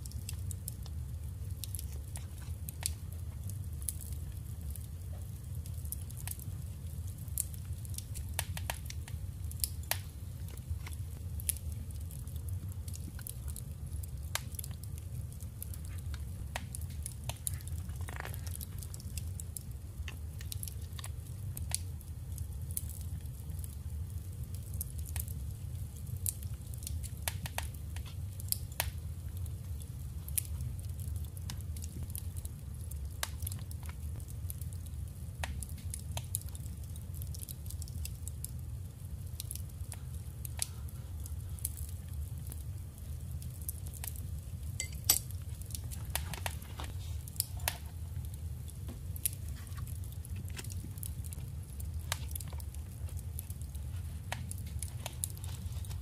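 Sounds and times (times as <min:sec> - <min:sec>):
paper crackling and rustling: 0:53.9 - 0:56.0.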